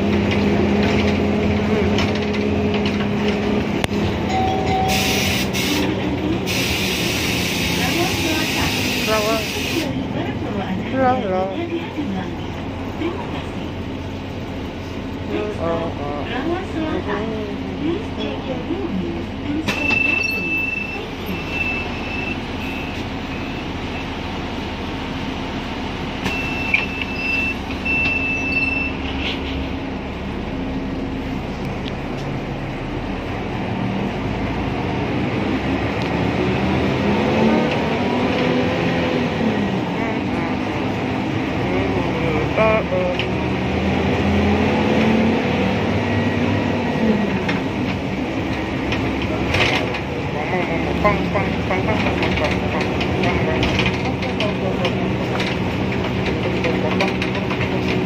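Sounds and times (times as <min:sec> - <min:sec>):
bus engine accelerating: 0:00.0 - 0:58.0
bus warning beeper: 0:04.2 - 0:09.9, 0:19.6 - 0:24.2, 0:26.2 - 0:29.1.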